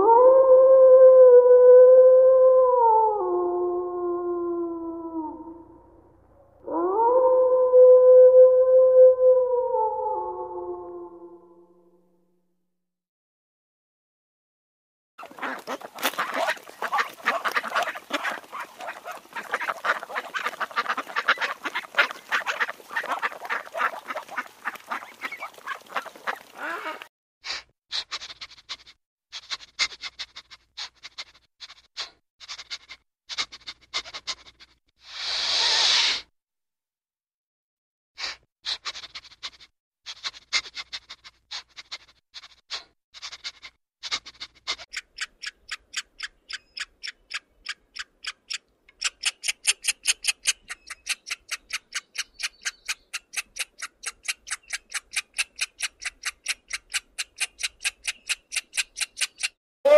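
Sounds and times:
duck quacking: 15.2 - 27.1
short hiss: 35.1 - 36.2
fast even ticking: 44.9 - 59.6.

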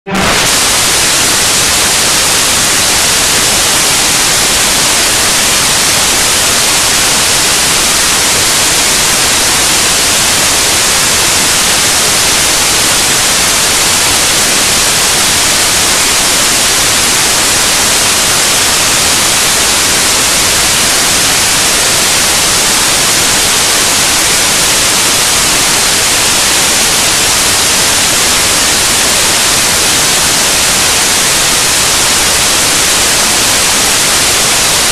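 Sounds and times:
static hiss: 0.1 - 34.9.

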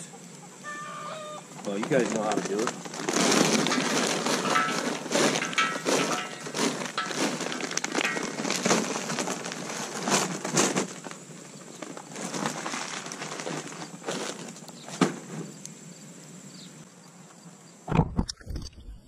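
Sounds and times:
charcoal clattering into fire pit: 1.6 - 15.6.

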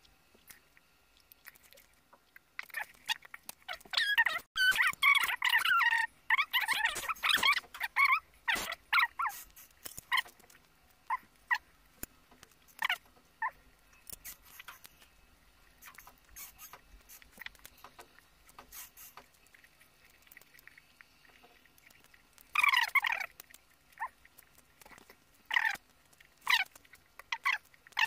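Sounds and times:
short high squeaks: 3.7 - 10.3, 14.0 - 15.1, 15.8 - 17.5, 18.5 - 19.2.

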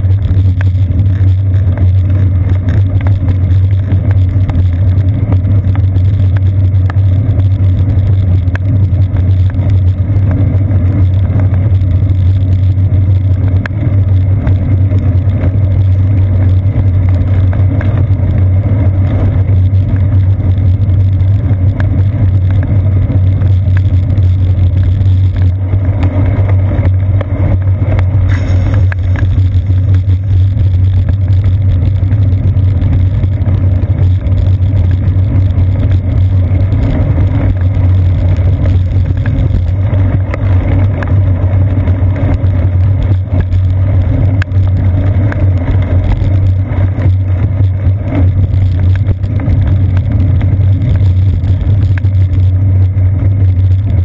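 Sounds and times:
road vibration rumble: 0.0 - 54.0
wind on microphone: 0.0 - 54.0
faint ticks: 23.4 - 52.5.

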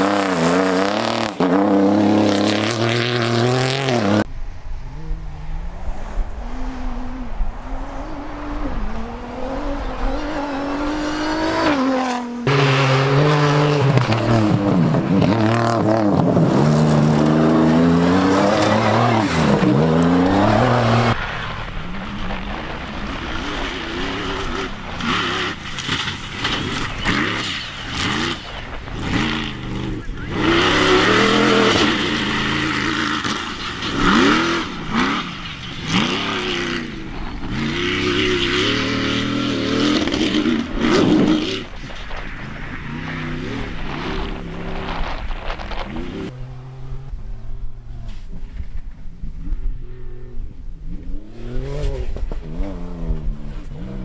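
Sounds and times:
buggy engine revving past: 0.0 - 41.8
race truck engine revving: 0.0 - 41.8.

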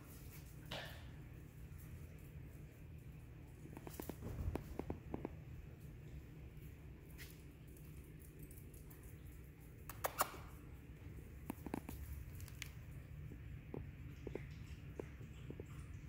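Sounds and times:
dog toenails clicking on tile: 7.0 - 15.9.

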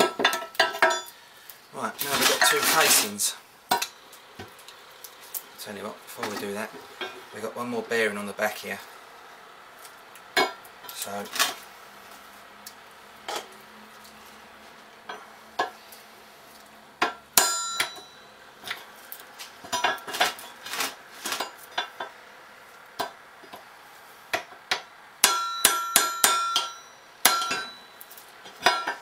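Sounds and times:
hammer striking steel drift: 17.1 - 18.3, 24.8 - 27.9.

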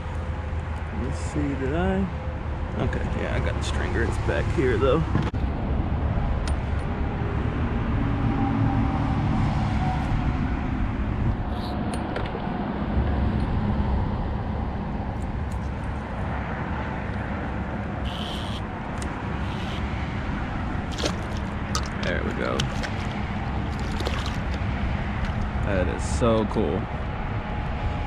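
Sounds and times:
road traffic rumble: 0.0 - 28.0.

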